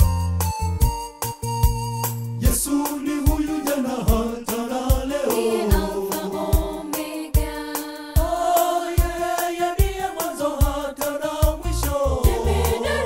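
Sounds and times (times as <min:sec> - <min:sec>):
deep bass line: 0:00.0 - 0:02.7, 0:11.6 - 0:13.0
steady beat: 0:00.0 - 0:13.0
gospel choir singing: 0:02.4 - 0:13.0.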